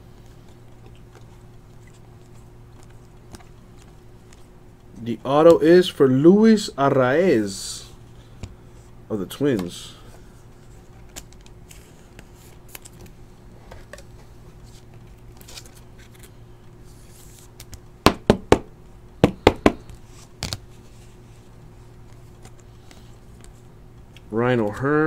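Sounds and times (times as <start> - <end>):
cards rustling: 13.9 - 17.8.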